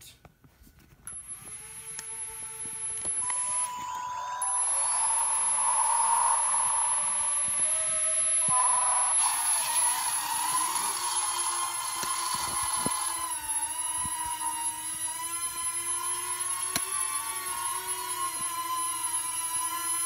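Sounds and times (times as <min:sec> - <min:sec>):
drone propellers whining: 0:01.1 - 0:20.0.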